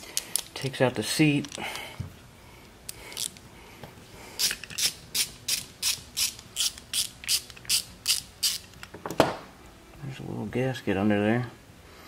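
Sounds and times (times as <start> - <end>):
hand ratchet clicking: 4.4 - 8.9.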